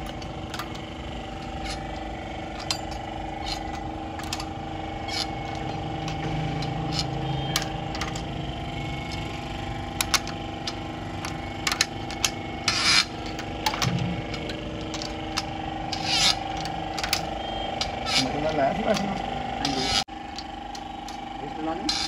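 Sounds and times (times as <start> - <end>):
metal clicks and clinks: 0.0 - 21.2
steady hum: 0.0 - 22.0
rasping scrape: 12.7 - 14.5, 15.9 - 16.6.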